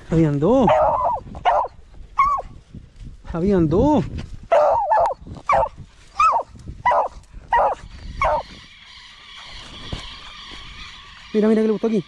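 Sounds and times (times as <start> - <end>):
dog barking: 0.6 - 2.5, 4.5 - 8.4.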